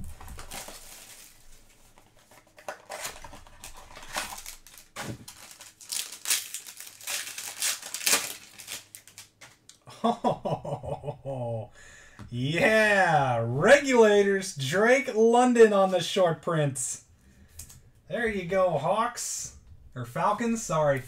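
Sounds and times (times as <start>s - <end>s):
packaging crinkling and tearing: 0.0s - 9.8s.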